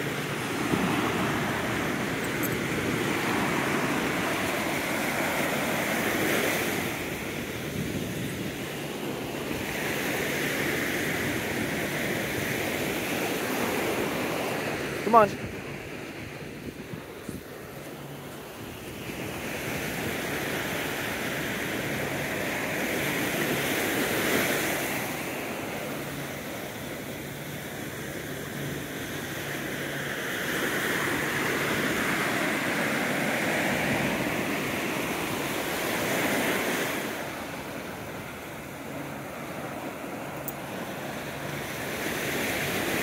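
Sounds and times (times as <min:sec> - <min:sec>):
wind on microphone: 0:00.0 - 0:14.3, 0:15.3 - 0:17.8
ocean surf breaking: 0:00.0 - 0:43.0.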